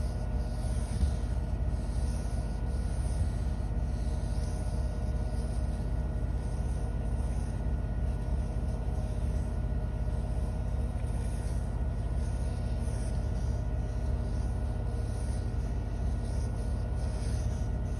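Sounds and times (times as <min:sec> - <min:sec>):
faint steady whine: 0:00.0 - 0:17.9
washing machine spinning: 0:00.0 - 0:17.9.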